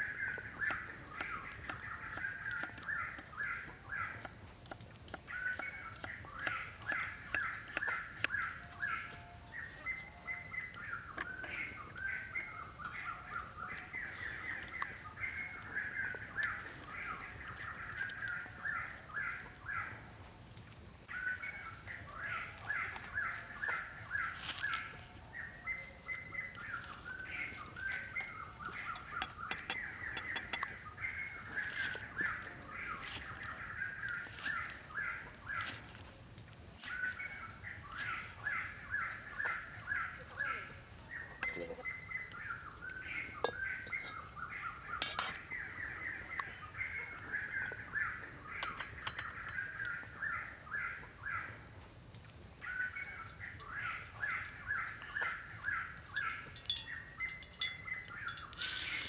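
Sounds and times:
birds calling and chattering: 0:00.0 - 0:20.2, 0:21.0 - 0:51.6, 0:52.6 - 0:59.0
insect drone: 0:00.0 - 0:59.0.

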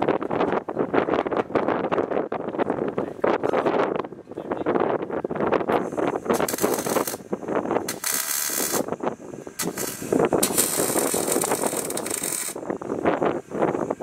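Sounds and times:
welding arc crackling and hissing: 0:05.8 - 0:14.0.

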